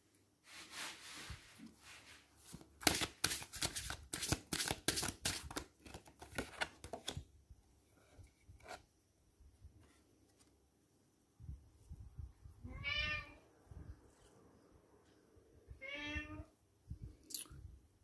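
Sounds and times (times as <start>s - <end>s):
cards sliding: 2.5s - 7.2s
cards clicking while shuffled: 2.8s - 7.2s.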